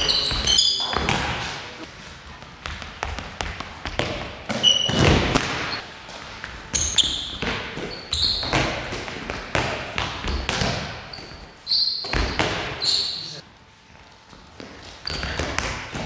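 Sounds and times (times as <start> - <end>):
sneaker squeaks on court: 0.0 - 1.6, 3.9 - 5.8, 6.7 - 9.0, 10.2 - 13.4, 15.0 - 16.0
balls bouncing on hall floor: 0.0 - 13.4, 14.2 - 16.0.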